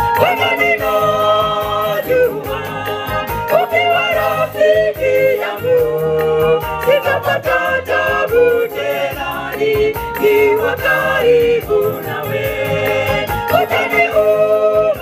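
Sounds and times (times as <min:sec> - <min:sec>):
choir singing gospel song: 0:00.0 - 0:15.0
women singing into microphones: 0:00.0 - 0:15.0.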